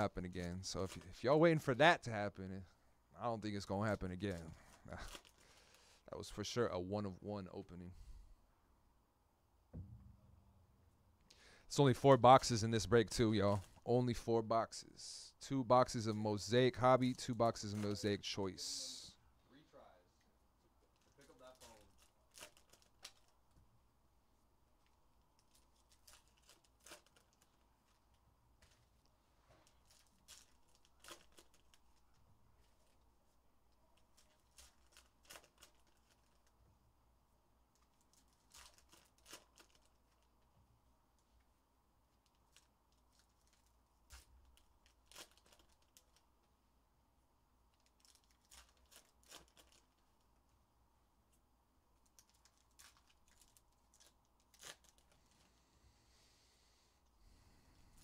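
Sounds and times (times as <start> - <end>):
card packs crinkling: 4.2 - 5.8, 20.9 - 23.4, 25.4 - 28.8, 29.6 - 33.0, 34.0 - 36.5, 37.8 - 40.3, 42.2 - 46.3, 47.7 - 50.2, 52.0 - 55.4.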